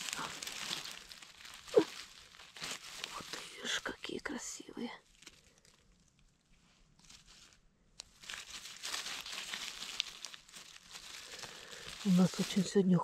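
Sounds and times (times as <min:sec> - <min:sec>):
forest litter rustling: 0:00.0 - 0:13.0.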